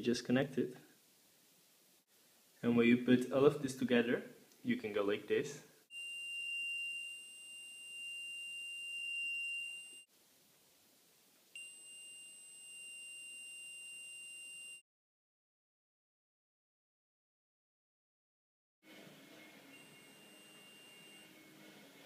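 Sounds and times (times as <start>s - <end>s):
high-pitched alarm buzzer beep: 19.7s - 21.4s.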